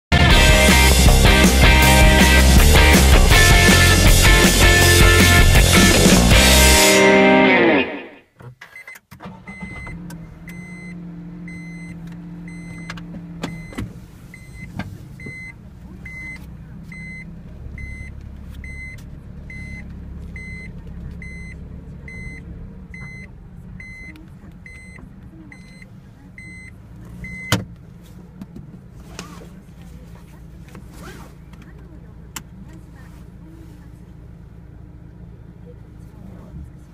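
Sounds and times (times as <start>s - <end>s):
low cabin hum: 0.1s - 8.1s, 19.5s - 36.9s
car indicator ticking: 14.6s - 28.8s, 30.7s - 32.9s.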